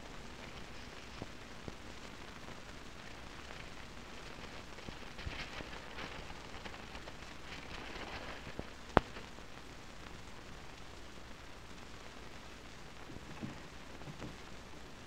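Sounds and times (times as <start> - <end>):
steady hiss: 0.0 - 15.0
cardboard sleeves rustling: 0.4 - 9.4, 13.0 - 14.6.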